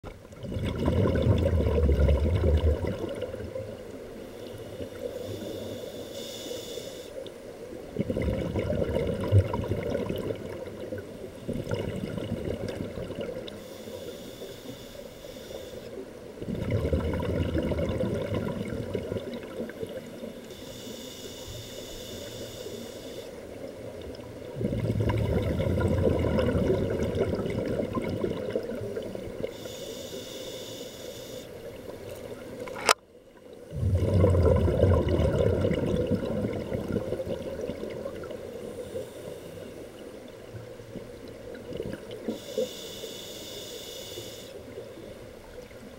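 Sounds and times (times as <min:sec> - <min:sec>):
exhaled bubbles rumbling: 0:00.0 - 0:04.1, 0:07.7 - 0:13.6, 0:16.3 - 0:20.3, 0:23.6 - 0:29.6, 0:33.4 - 0:39.0, 0:39.7 - 0:42.4
regulator inhalation hiss: 0:05.1 - 0:07.2, 0:13.6 - 0:16.0, 0:20.4 - 0:23.4, 0:29.6 - 0:31.6, 0:42.3 - 0:44.6.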